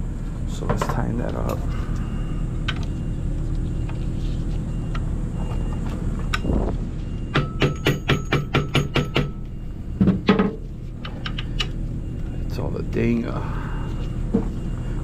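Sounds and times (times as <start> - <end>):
low hum: 0.0 - 8.3, 9.0 - 15.0
mallet striking metal: 7.3 - 9.4.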